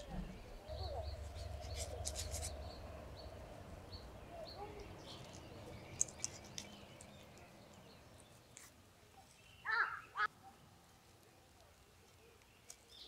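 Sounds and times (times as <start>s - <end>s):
faint bird chirps: 0.0s - 8.6s.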